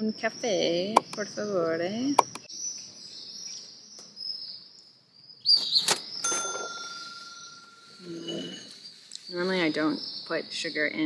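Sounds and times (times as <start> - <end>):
metallic ring: 6.3 - 8.7
high-pitched chirring: 6.3 - 8.8.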